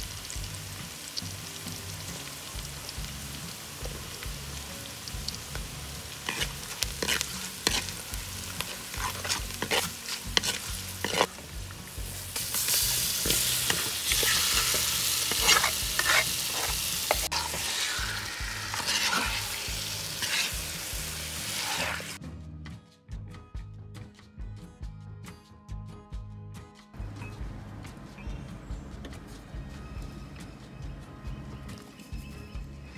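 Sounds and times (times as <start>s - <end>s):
onions sizzling in oil: 0.0s - 22.2s
spoon scraping a pot: 6.2s - 11.4s, 12.6s - 20.8s, 21.5s - 22.2s.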